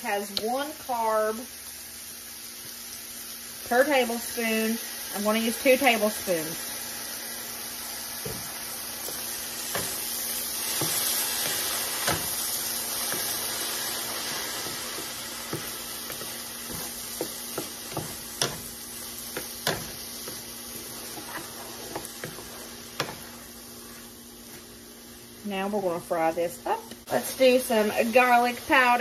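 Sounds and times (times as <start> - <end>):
vegetables sizzling in a skillet: 0.0 - 29.0
wooden spoon scraping a pan: 8.2 - 24.9.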